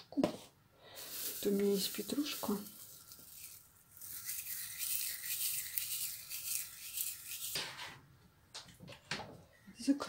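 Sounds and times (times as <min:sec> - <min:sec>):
parsley rustling between fingers: 0:01.0 - 0:07.6.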